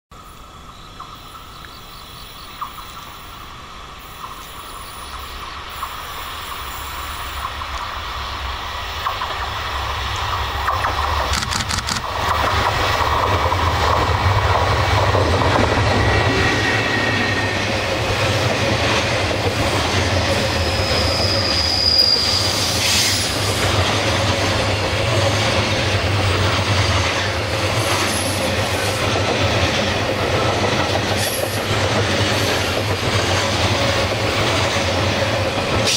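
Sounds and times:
freight train approaching: 0:00.1 - 0:35.9
wheels rumbling on rails: 0:04.0 - 0:35.9
high-pitched wheel squeals: 0:20.6 - 0:23.2.

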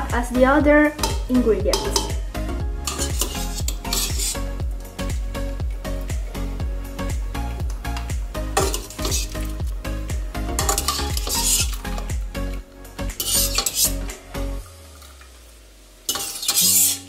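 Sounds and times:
background music with steady beat: 0:00.0 - 0:15.9
metal spoon scraping in steel pot: 0:02.8 - 0:04.5, 0:08.6 - 0:09.6, 0:10.6 - 0:12.0, 0:13.2 - 0:14.1, 0:16.1 - 0:17.0.

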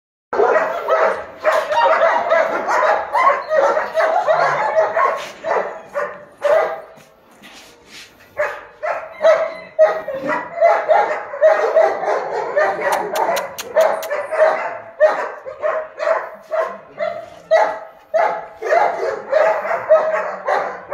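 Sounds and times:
dogs barking: 0:00.3 - 0:07.1, 0:08.3 - 0:20.9.

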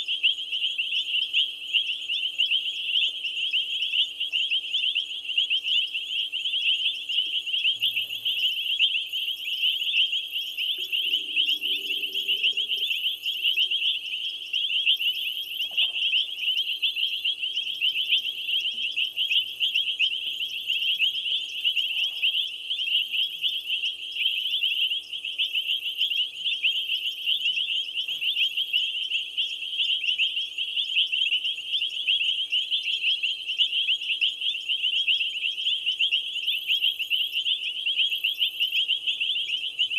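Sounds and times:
insects and frogs trilling: 0:00.0 - 0:39.9
high pulsed buzz: 0:10.7 - 0:13.8.

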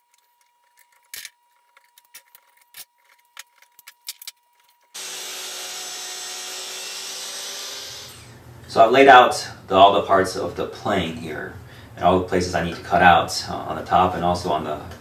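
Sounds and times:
miter saw cutting wood: 0:04.9 - 0:08.4.

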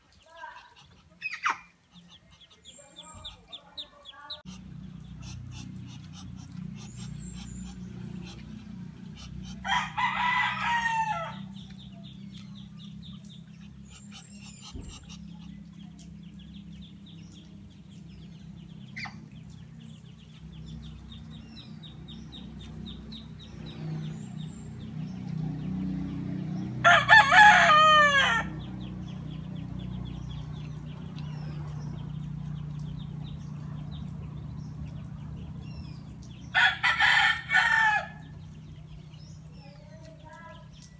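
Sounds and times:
steady low hum: 0:00.7 - 0:26.8
rooster crowing: 0:09.6 - 0:11.6, 0:26.8 - 0:28.6, 0:36.5 - 0:38.4.

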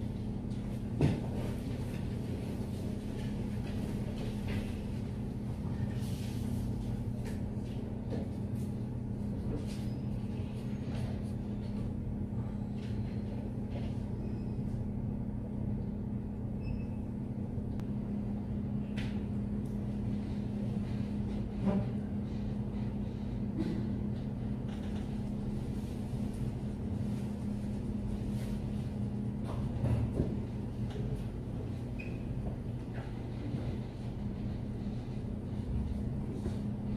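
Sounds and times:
low room hum: 0:00.0 - 0:36.9.

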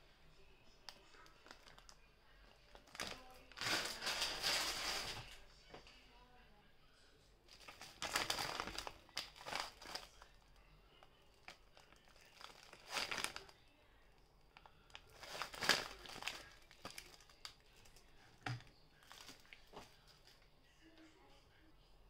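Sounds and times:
plastic packet crinkling: 0:00.9 - 0:02.0, 0:02.7 - 0:05.4, 0:07.5 - 0:10.4, 0:11.4 - 0:13.5, 0:14.6 - 0:20.4.

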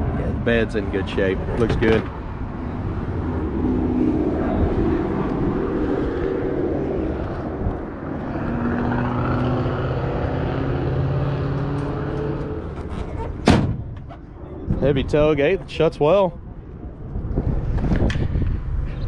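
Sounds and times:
engine drone: 0:00.0 - 0:13.4.

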